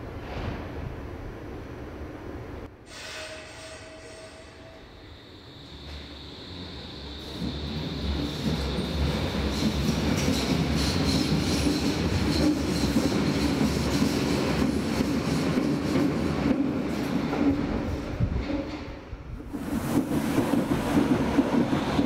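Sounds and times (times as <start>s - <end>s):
subway train running on track: 0.0s - 22.0s.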